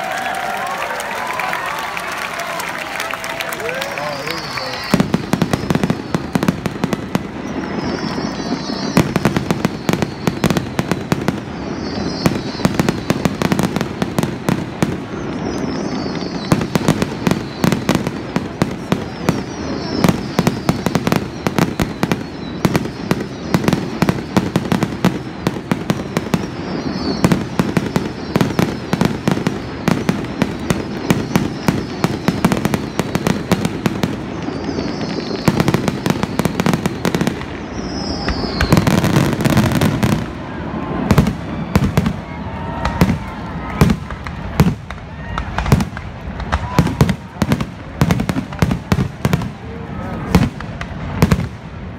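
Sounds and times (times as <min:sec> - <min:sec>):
fireworks bangs and crackles: 0:00.0 - 0:51.9.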